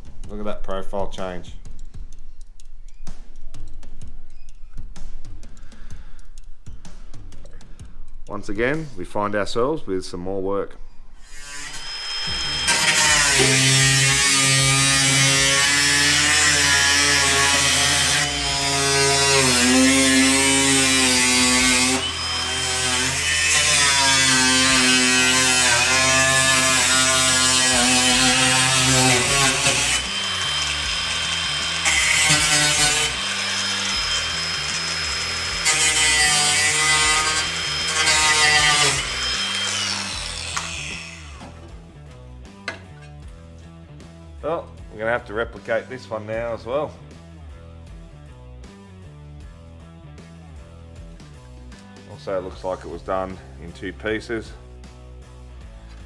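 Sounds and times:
power grinder cutting sheet steel: 11.2 - 41.5.

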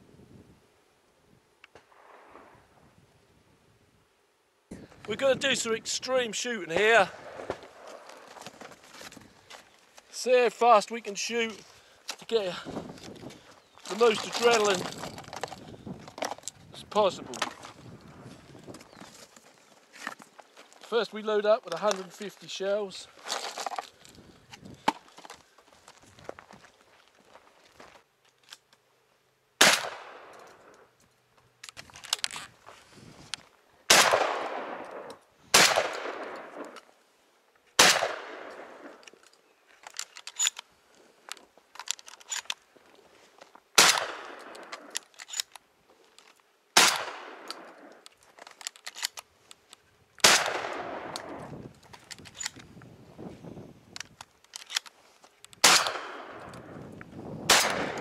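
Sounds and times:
loud shotgun shots: 29.6 - 30.4, 33.9 - 36.7, 37.8 - 39.0, 43.8 - 44.7, 46.8 - 47.7, 50.2 - 51.4, 55.6 - 56.4, 57.4 - 58.0.

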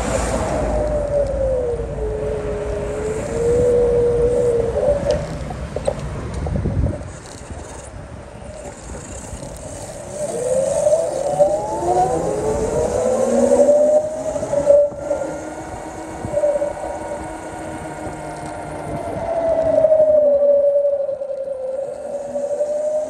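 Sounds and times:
emergency vehicle siren wailing: 0.0 - 5.4, 10.1 - 23.0
street traffic noise: 0.0 - 23.0.

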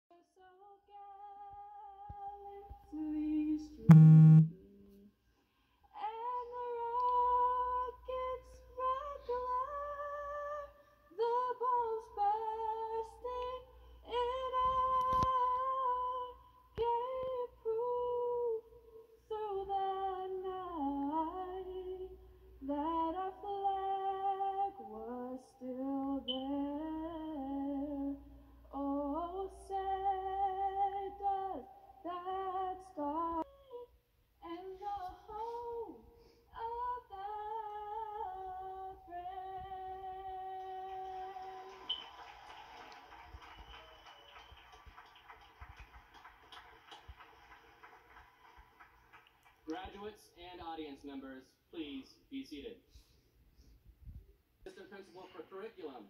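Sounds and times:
woman singing unaccompanied: 0.1 - 4.6, 6.0 - 41.8.

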